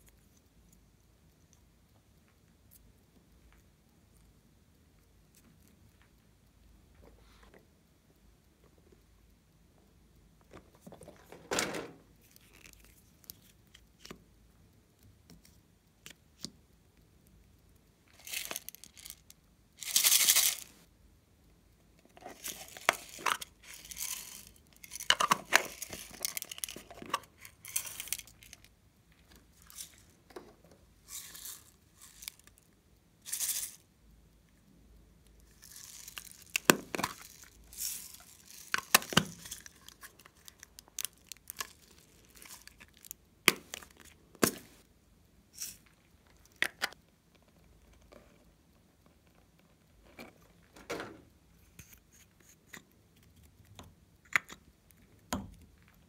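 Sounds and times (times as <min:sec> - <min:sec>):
plastic containers rustling and clicking: 0:10.4 - 0:12.9, 0:22.1 - 0:28.7, 0:35.6 - 0:44.8
sprinkles shaken into bowl: 0:19.8 - 0:20.8.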